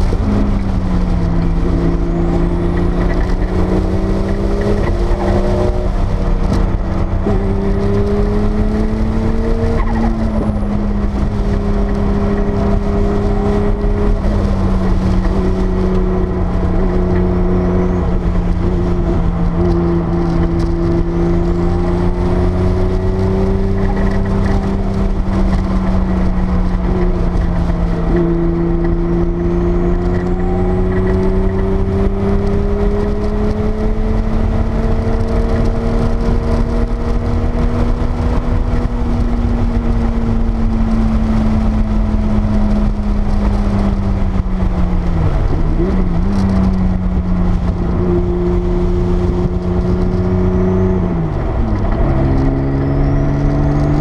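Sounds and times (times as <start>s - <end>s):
car engine accelerating: 0.0s - 54.0s
road noise rumble: 0.0s - 54.0s.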